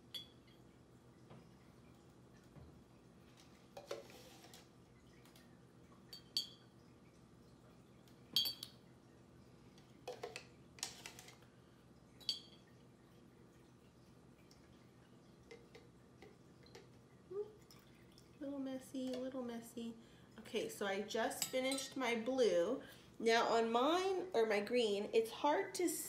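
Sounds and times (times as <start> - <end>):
metal spoon tapping glass: 8.4 - 8.7.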